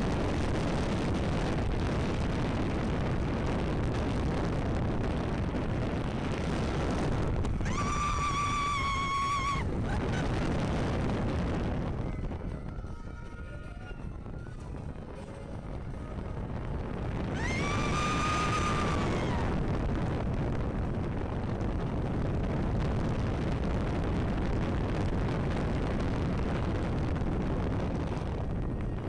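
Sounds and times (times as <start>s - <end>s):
roller coaster rumbling on track: 0.0s - 29.0s
wind rush over microphone: 0.0s - 29.0s
rider screaming: 7.6s - 10.2s, 17.3s - 19.6s.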